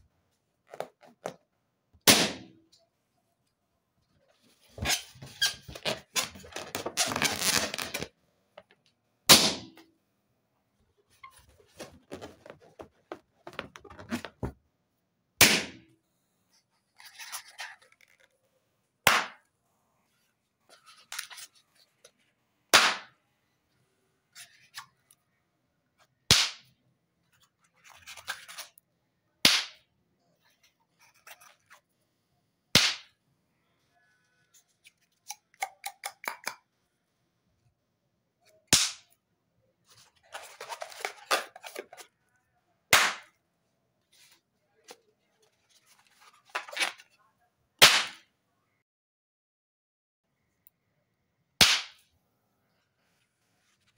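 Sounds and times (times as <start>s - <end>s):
balloons popping: 4.8s - 8.1s.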